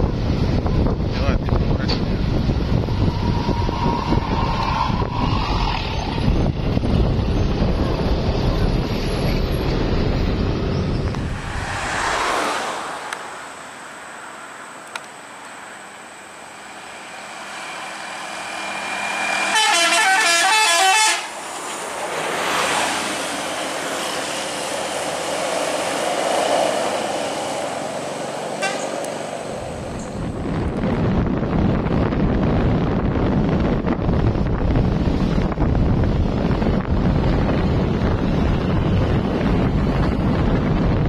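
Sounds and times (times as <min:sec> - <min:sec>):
bus engine and tyres passing: 0:00.0 - 0:41.0
warbling bus horn: 0:19.3 - 0:21.4, 0:28.6 - 0:29.0.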